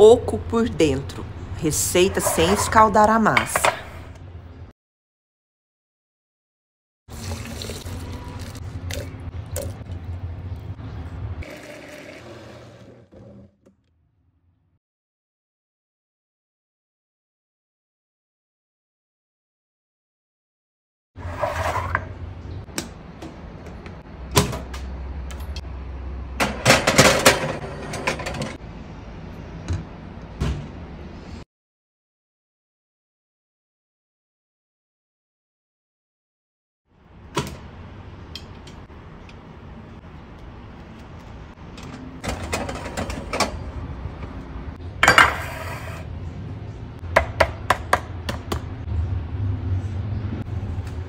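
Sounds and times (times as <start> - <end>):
metal tin scraping clatter: 2.1 - 2.9.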